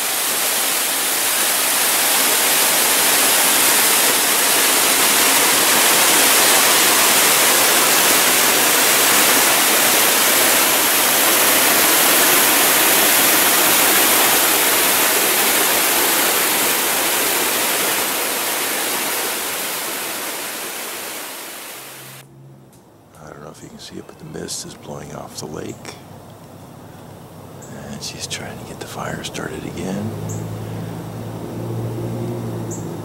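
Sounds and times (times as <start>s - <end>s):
waterfall rushing: 0.0s - 22.2s.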